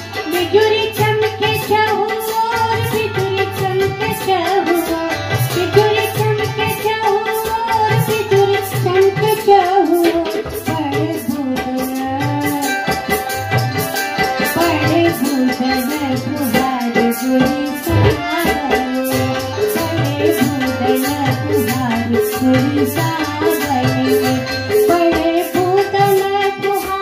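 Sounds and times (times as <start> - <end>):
hand drum strokes: 17.8 - 18.4.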